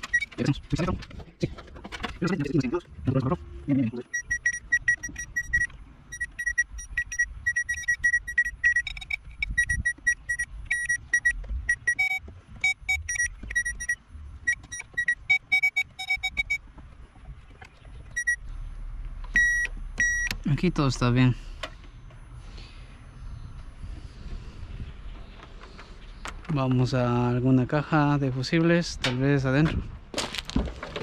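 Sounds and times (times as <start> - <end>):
circuit tester beeping: 0.0 - 0.5, 3.3 - 16.6, 18.1 - 21.3.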